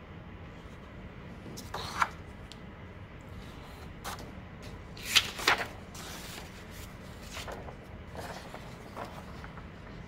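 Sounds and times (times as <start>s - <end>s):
paper rustling on a tabletop: 1.4s - 2.2s, 3.4s - 10.0s.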